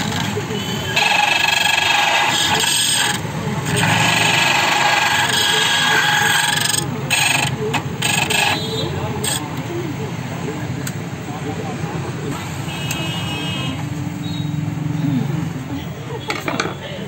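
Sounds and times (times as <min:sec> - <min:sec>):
key cutter grinding metal: 0:00.0 - 0:09.5.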